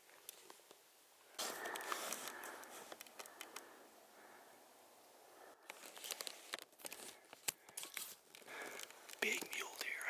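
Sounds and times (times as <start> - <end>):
camera handling rustles and clicks: 1.4 - 3.6, 5.6 - 9.5.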